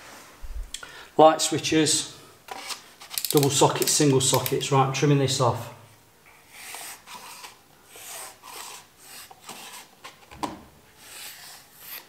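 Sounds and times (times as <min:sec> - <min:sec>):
knife cutting wallpaper: 0:06.5 - 0:10.2, 0:11.0 - 0:12.0.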